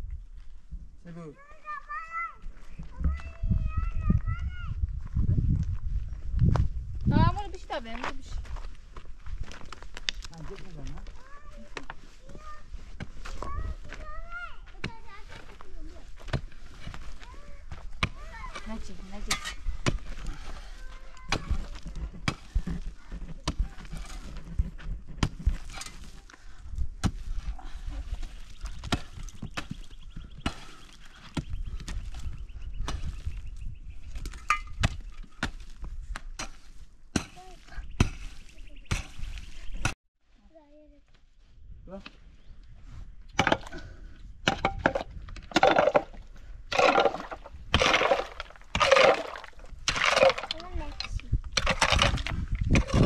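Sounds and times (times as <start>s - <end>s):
dirt and pebbles scraping: 4.8s - 39.9s, 42.2s - 53.0s
pickaxe striking stony soil: 34.2s - 37.4s, 44.5s - 53.0s.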